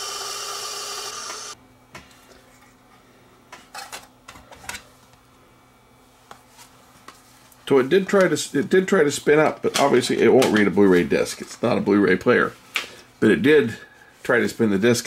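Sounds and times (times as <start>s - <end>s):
disc spindle motor whirring: 0.0s - 1.6s.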